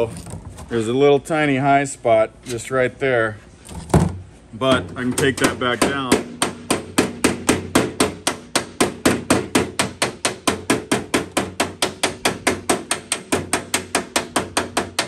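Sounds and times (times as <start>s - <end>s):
hammer tapping sheet metal: 4.7s - 15.0s.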